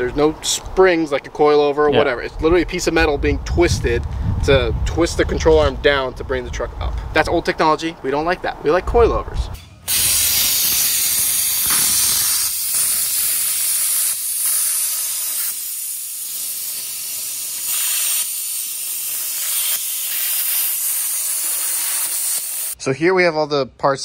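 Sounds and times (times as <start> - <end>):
welder arc crackling and hissing: 9.9 - 22.8.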